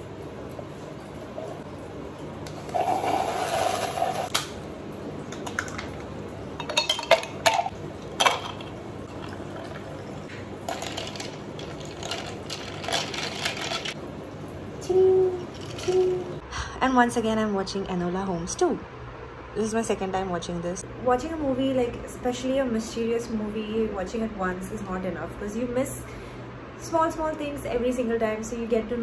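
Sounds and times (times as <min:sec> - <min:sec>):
liquid pouring into a cup: 0:00.8 - 0:04.3, 0:07.8 - 0:14.6.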